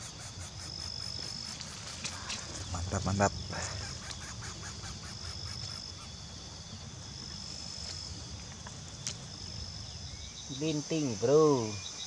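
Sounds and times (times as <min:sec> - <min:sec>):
rapid pulsing chirp: 0:00.0 - 0:07.0
insects trilling: 0:00.0 - 0:12.0
low rumble: 0:02.3 - 0:07.5.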